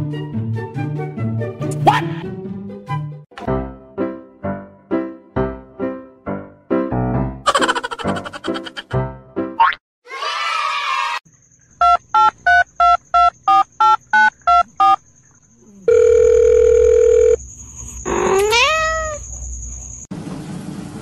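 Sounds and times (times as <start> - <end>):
cat meowing: 18.1 - 19.2.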